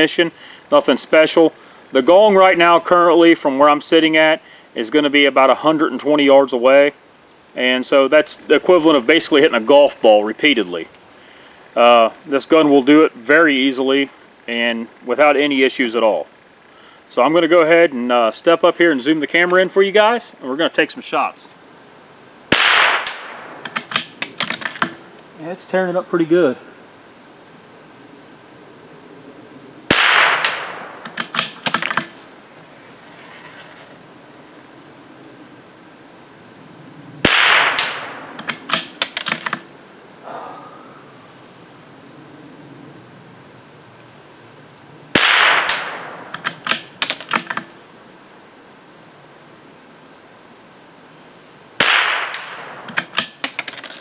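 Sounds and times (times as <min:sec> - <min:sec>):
high insect drone: 0:00.0 - 0:54.0
rifle shots: 0:22.5 - 0:25.0, 0:29.9 - 0:32.2, 0:37.2 - 0:39.5, 0:45.1 - 0:47.4, 0:51.8 - 0:53.5
rifle bolt clicks: 0:30.4 - 0:32.1.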